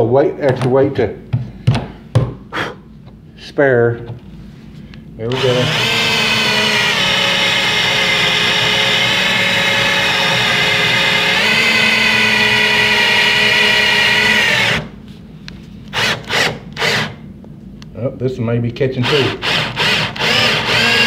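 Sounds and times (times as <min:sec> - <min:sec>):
cordless drill whine: 0:05.3 - 0:14.9, 0:15.9 - 0:17.2, 0:19.0 - 0:21.0.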